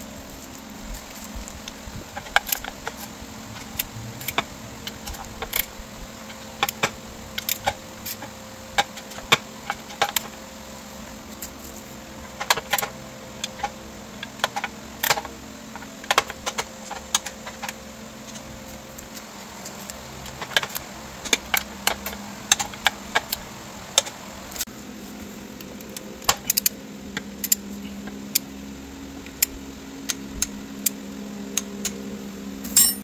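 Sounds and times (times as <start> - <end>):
faint steady hum: 0.0 - 33.0
ratchet wrench clicking: 2.3 - 5.7, 27.4 - 27.7.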